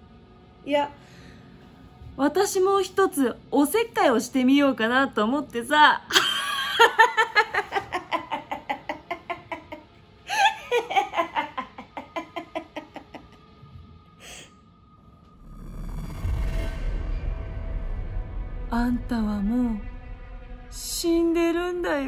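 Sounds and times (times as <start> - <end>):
woman laughing maniacally: 6.1 - 13.4
low rumble: 14.8 - 22.0.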